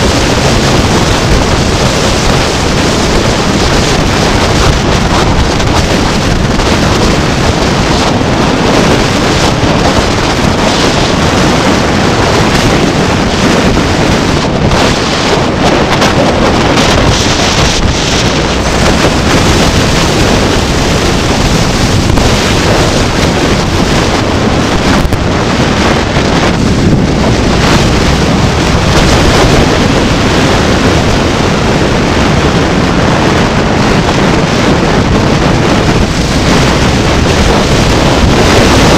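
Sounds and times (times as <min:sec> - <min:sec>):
wind rumbling over microphone: 0:00.0 - 0:38.9.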